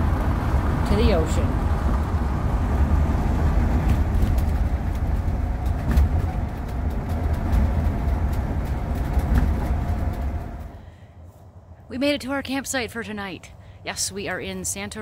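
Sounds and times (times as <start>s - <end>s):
deep road and drivetrain rumble: 0.0s - 15.0s
light clicks and rattles: 3.8s - 10.8s.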